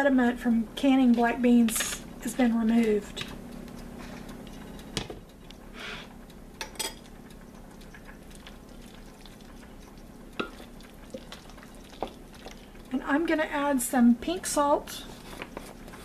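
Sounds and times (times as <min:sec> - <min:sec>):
spatula stirring thick dip: 0:07.3 - 0:13.2.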